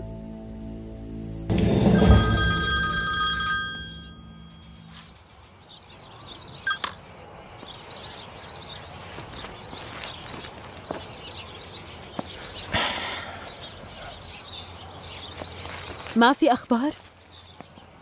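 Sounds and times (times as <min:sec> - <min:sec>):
music chord with chime-like ringing: 0:00.0 - 0:05.1.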